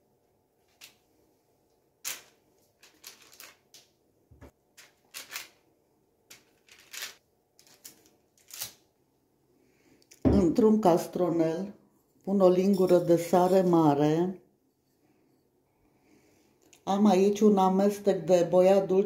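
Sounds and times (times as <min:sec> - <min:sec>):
baking parchment crinkling: 0:02.0 - 0:04.0, 0:04.7 - 0:05.7, 0:06.3 - 0:09.0.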